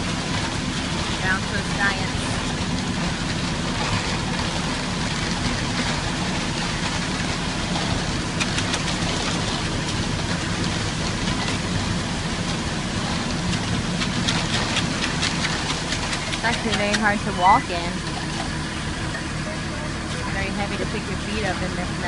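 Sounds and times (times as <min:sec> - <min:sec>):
truck engine running: 0:00.0 - 0:22.0
wet concrete being scraped: 0:01.1 - 0:18.6.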